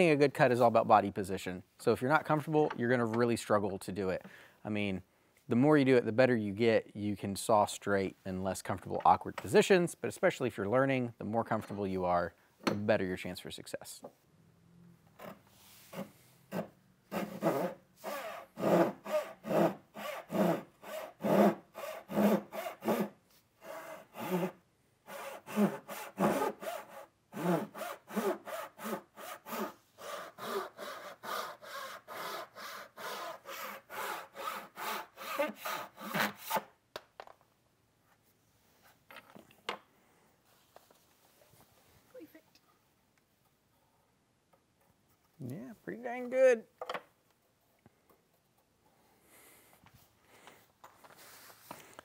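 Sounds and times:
hand saw rasping through wood: 0:15.9 - 0:36.7.

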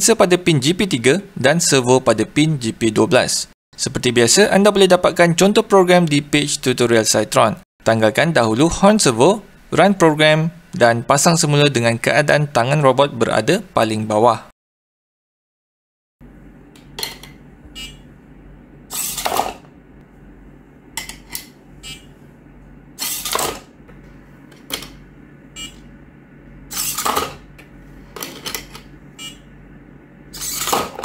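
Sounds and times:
servo motor swinging arm: 0:18.9 - 0:19.6, 0:30.3 - 0:31.0.

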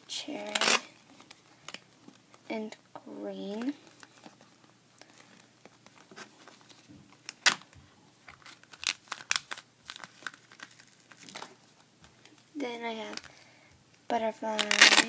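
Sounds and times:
duct tape wallet crinkling: 0:00.4 - 0:02.5, 0:03.5 - 0:12.4, 0:14.6 - 0:15.0.

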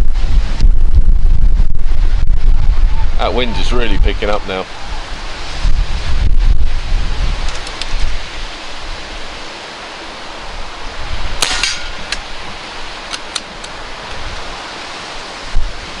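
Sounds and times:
wind on microphone: 0:00.0 - 0:16.0
air rifle shot: 0:11.4 - 0:12.2.

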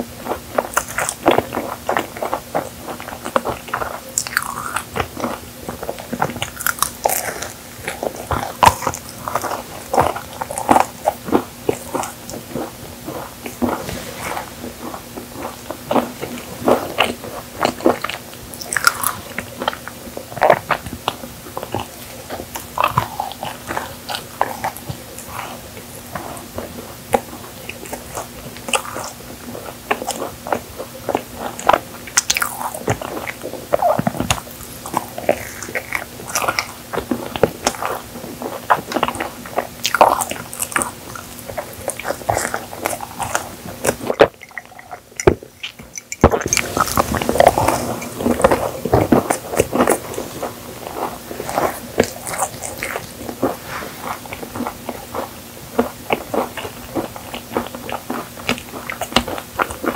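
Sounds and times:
wet chewing mouth sounds: 0:00.0 - 0:59.9
cookie crunches: 0:00.1 - 0:59.9.

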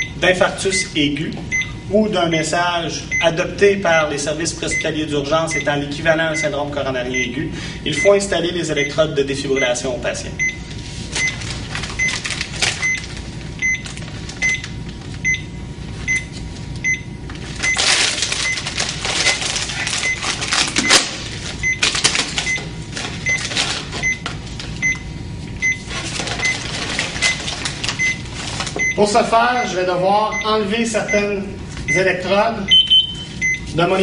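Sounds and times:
heart monitor beeping: 0:00.0 - 0:00.2, 0:01.5 - 0:01.9, 0:04.7 - 0:07.4, 0:08.0 - 0:09.0, 0:09.6 - 0:09.8, 0:10.4 - 0:11.4, 0:12.0 - 0:12.2, 0:12.8 - 0:33.7
plastic packet crinkling and peeling: 0:11.1 - 0:15.2, 0:17.4 - 0:24.8, 0:25.9 - 0:28.8.

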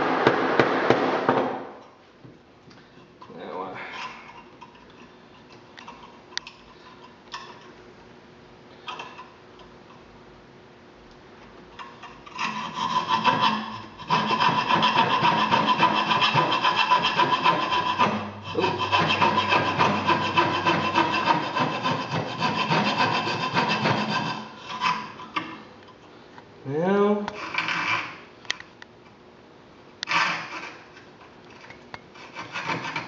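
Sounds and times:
coping saw cutting wood: 0:12.4 - 0:25.2.

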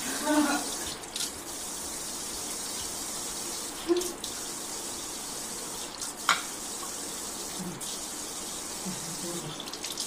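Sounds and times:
water running from kitchen tap: 0:00.0 - 0:10.0.

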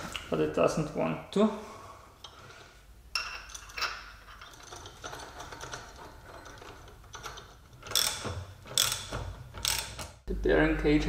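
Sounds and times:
socket ratchet clicking: 0:07.8 - 0:10.2.

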